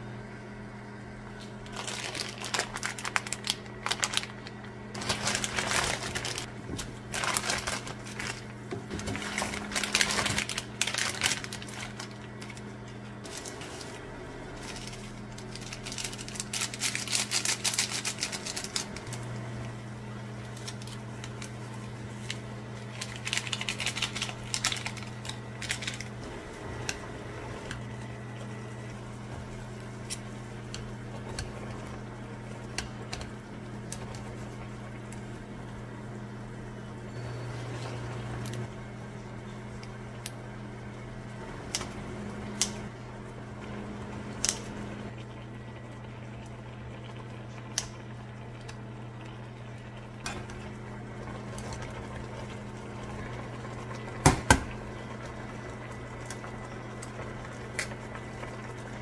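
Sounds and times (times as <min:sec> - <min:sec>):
electric cooktop humming: 0:00.0 - 0:59.0
water boiling in a pot: 0:01.5 - 0:59.0
packet crinkling and rustling: 0:01.6 - 0:19.2, 0:20.4 - 0:26.2.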